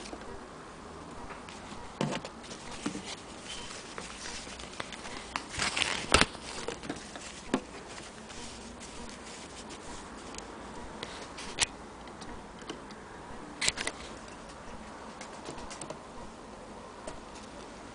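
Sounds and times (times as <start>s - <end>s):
cloth rustling: 2.4s - 11.6s.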